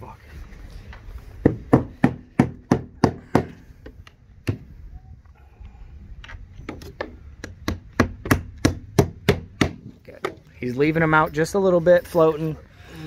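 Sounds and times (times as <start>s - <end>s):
hammer driving nails: 1.4s - 3.6s, 6.6s - 10.4s.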